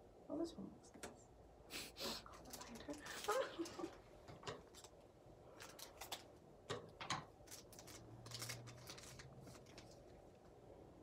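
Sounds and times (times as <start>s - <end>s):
cards and foil pack rustling: 2.3s - 4.0s, 4.6s - 6.4s, 7.3s - 10.4s.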